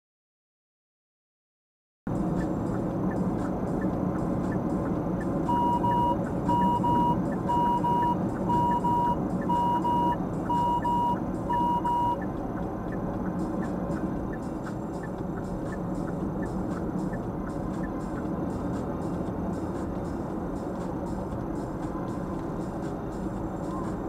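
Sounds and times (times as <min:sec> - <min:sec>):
car cabin road and engine noise: 0:02.1 - 0:24.0
electronic warning beeper double beeps: 0:05.5 - 0:12.3.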